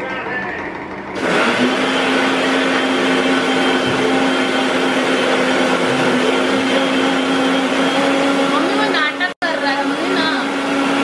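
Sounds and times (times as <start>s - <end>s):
mixer grinder motor whine: 0.0s - 11.0s.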